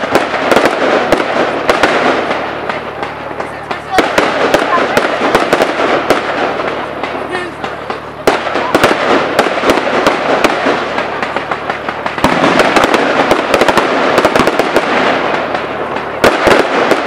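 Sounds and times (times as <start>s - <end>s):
firework bangs: 0.0s - 17.0s
firework crackle: 0.0s - 17.0s.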